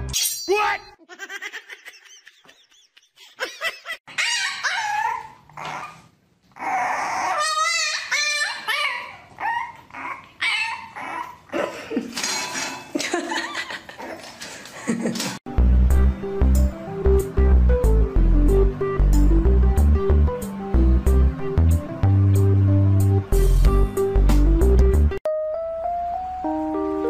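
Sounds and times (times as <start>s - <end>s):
dog whining and yipping: 4.1s - 11.5s.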